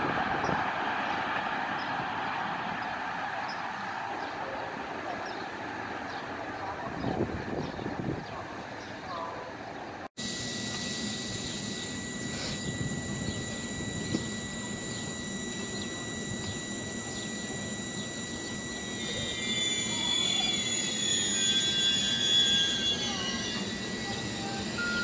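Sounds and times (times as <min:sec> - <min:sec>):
steady high whine: 0:10.0 - 0:25.0
train wheels squealing: 0:11.9 - 0:25.0.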